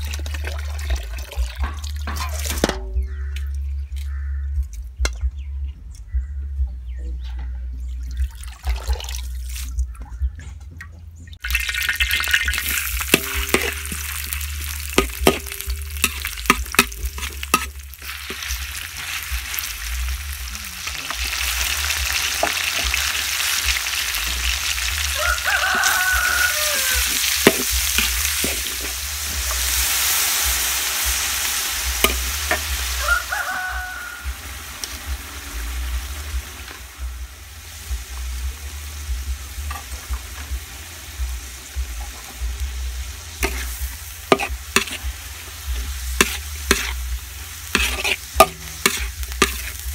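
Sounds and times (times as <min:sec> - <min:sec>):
water pouring into metal basin: 0:00.0 - 0:02.8, 0:08.2 - 0:09.8, 0:11.4 - 0:20.2
meat sizzling in hot oil: 0:11.4 - 0:49.9
metal spatula scraping pan: 0:13.0 - 0:14.2, 0:27.0 - 0:29.7, 0:43.4 - 0:45.1, 0:46.1 - 0:47.1, 0:47.7 - 0:49.9.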